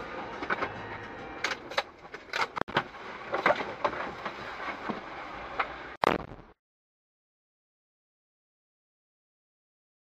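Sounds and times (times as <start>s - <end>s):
road and engine noise: 0.0s - 6.0s.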